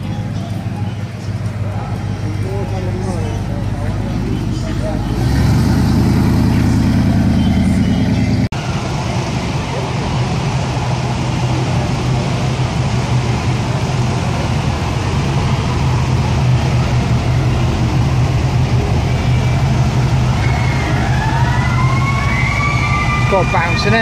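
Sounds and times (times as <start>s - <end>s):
car engine humming: 0.0s - 24.0s
rising siren-like wail: 16.7s - 24.0s.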